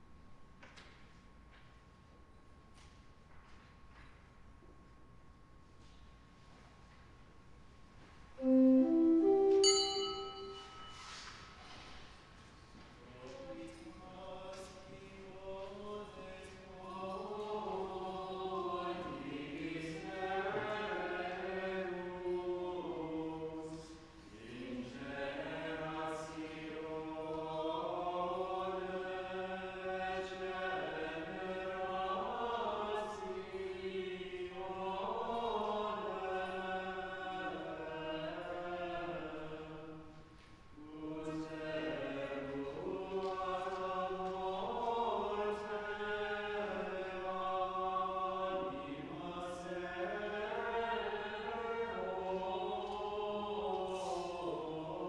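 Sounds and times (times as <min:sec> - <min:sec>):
choir singing plainchant: 0:08.4 - 0:10.6, 0:14.1 - 0:40.1, 0:40.8 - 0:55.0.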